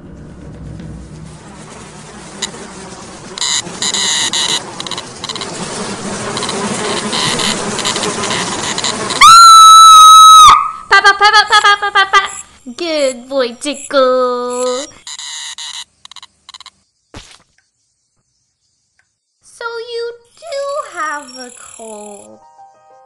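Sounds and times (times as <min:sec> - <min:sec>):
insect wings buzzing: 0:00.9 - 0:10.5, 0:11.6 - 0:22.4
loud high steady scream: 0:09.1 - 0:10.9.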